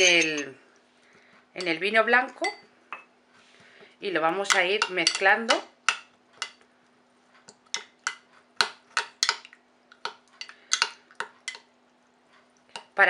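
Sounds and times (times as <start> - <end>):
metal spoon clinking in glass: 0.0 - 0.5.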